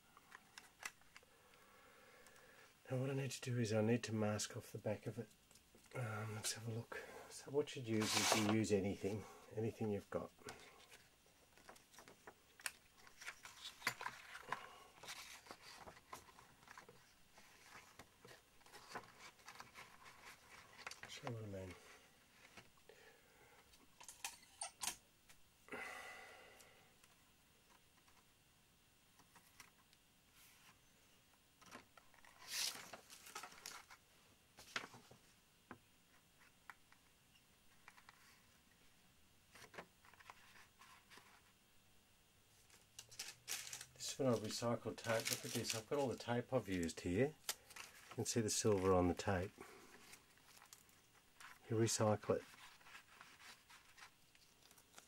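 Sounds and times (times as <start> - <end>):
card and tape rustling: 8.0 - 8.6, 10.8 - 21.4, 31.6 - 34.0, 42.6 - 55.0.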